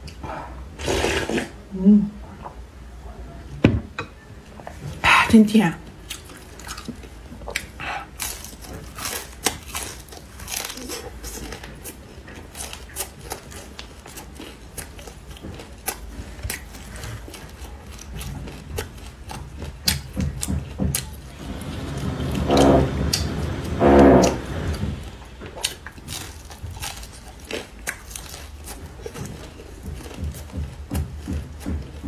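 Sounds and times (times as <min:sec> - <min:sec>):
crispy food crunching: 0:06.0 - 0:32.0.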